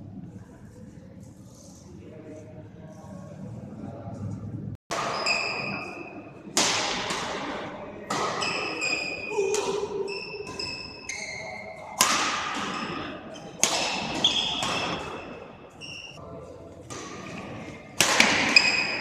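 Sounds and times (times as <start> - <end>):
racket striking shuttlecock: 4.9 - 10.9, 12.0 - 15.5, 16.9 - 19.0
shoes squeaking on court floor: 5.0 - 6.1, 8.3 - 11.9, 12.6 - 16.2, 18.4 - 19.0.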